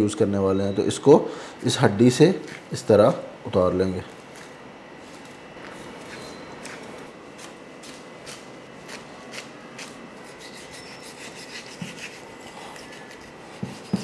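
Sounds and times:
knife scraping along bone: 6.0s - 14.0s.

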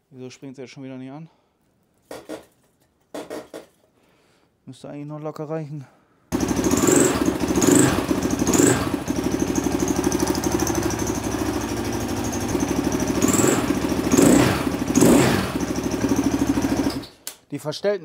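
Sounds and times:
motorcycle engine revving and idling: 6.3s - 17.1s.

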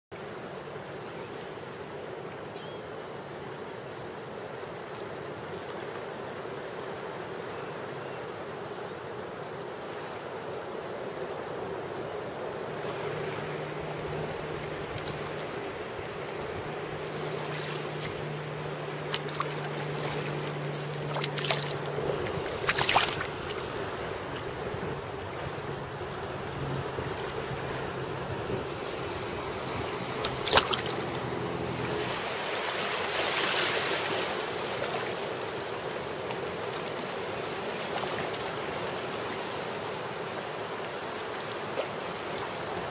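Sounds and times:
low steady hum: 11.4s - 32.4s
shallow sea water washing: 11.5s - 42.9s
fish splashing at surface: 19.0s - 23.8s, 30.2s - 31.2s.

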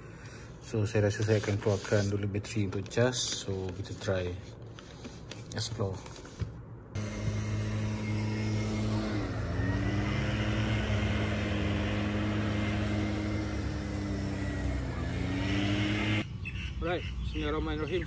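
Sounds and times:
engine humming: 7.0s - 16.2s.

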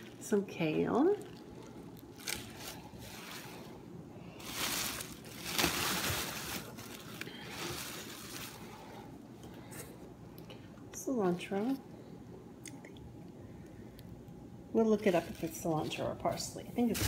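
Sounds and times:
papery rustle and scrape: 4.4s - 8.8s.

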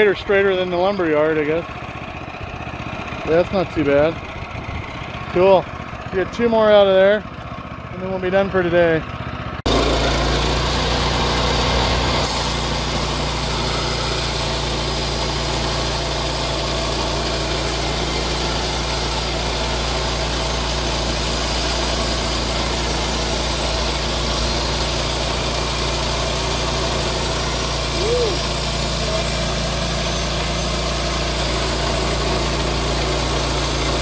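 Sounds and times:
sawmill engine running: 0.0s - 34.0s
band blade cutting log: 9.7s - 34.0s.

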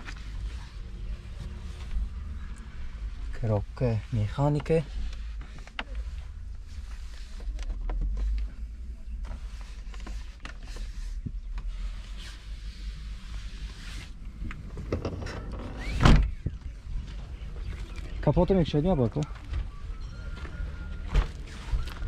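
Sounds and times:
car door shutting: 14.6s - 16.6s.

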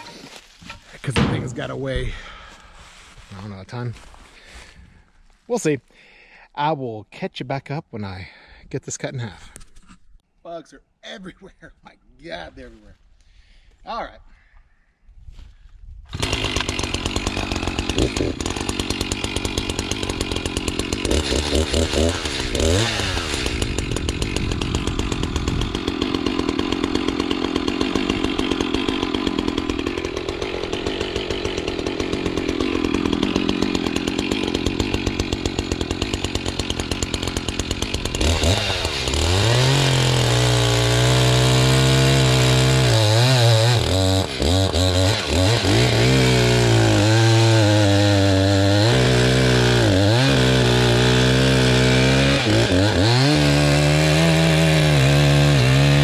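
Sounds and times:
chainsaw cutting log: 16.1s - 56.0s.

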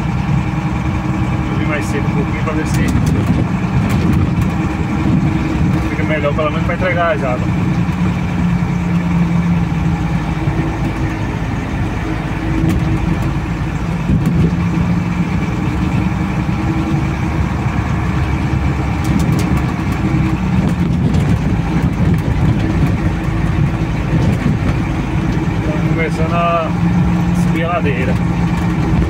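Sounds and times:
truck engine running: 0.0s - 29.0s.

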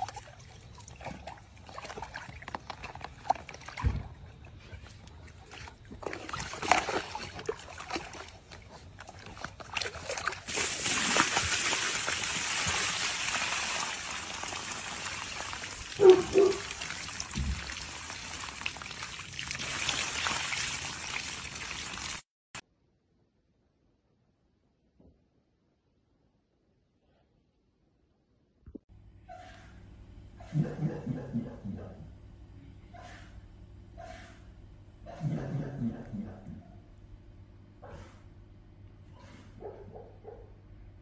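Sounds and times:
hose water running into tub: 0.0s - 22.3s
puppy splashing in water: 0.0s - 22.3s.

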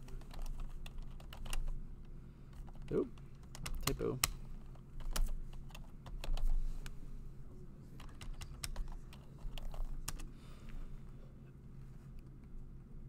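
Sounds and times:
typing on computer keyboard: 0.0s - 1.8s, 2.6s - 4.4s, 5.0s - 6.6s, 8.0s - 10.3s
low steady hum: 0.0s - 13.0s.

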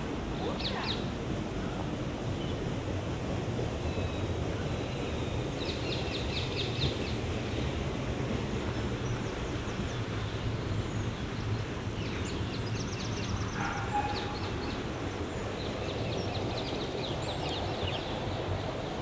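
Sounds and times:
small birds chirping and trilling: 0.4s - 1.1s, 8.8s - 18.8s.

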